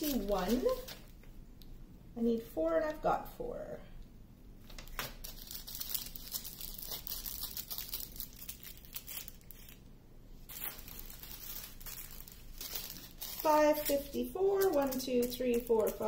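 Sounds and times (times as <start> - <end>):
plastic bags crinkling: 0.0 - 1.2, 4.8 - 9.8, 10.4 - 16.0.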